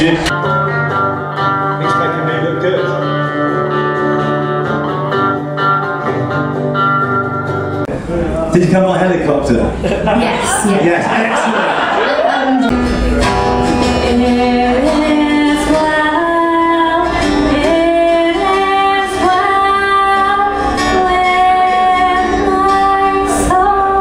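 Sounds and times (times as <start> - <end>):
acoustic guitar: 0.0 - 24.0
woman singing: 13.9 - 24.0.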